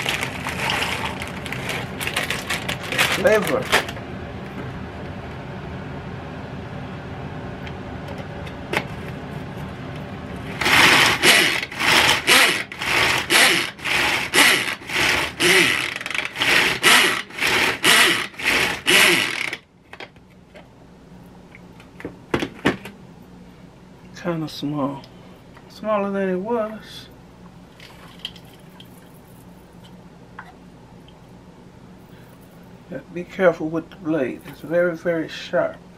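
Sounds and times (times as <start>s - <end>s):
food chopper blades whirring: 0.0s - 3.9s, 10.4s - 19.7s
steady background hum: 0.0s - 35.9s.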